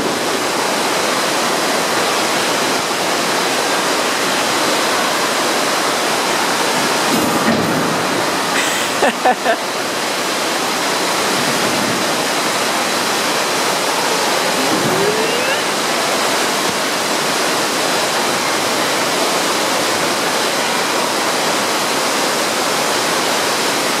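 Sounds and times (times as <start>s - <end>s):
rushing water of water slides: 0.0s - 24.0s.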